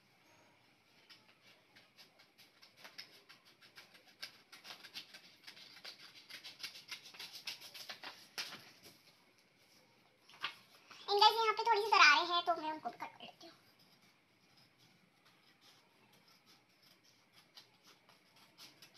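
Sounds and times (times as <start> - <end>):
paper rustling and crinkling: 0.8 - 11.8.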